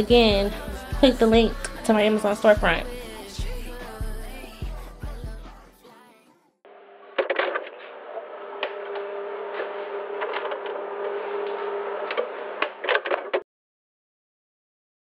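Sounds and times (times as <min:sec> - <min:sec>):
electrical hum: 0:06.8 - 0:12.8.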